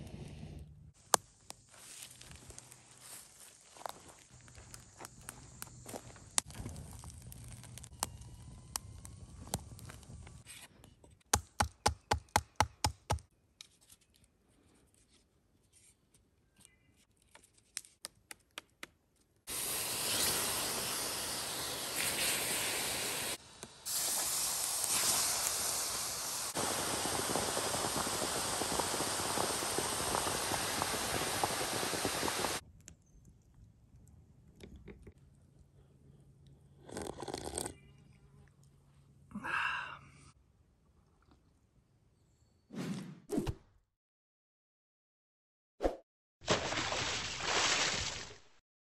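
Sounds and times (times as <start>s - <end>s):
hot stones hissing in water: 19.5s - 32.6s.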